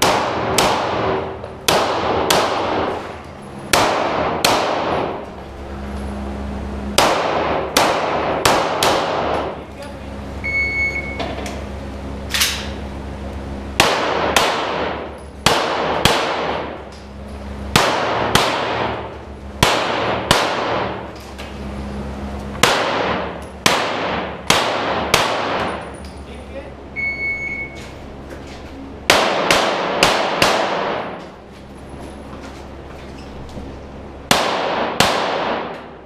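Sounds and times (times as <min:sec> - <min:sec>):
echoing pistol shots: 0:00.0 - 0:03.0, 0:03.7 - 0:05.2, 0:07.0 - 0:09.5, 0:13.8 - 0:16.8, 0:17.7 - 0:21.0, 0:22.6 - 0:25.8, 0:29.1 - 0:31.2, 0:34.3 - 0:35.8
shot timer beep: 0:10.4 - 0:11.3, 0:27.0 - 0:27.8.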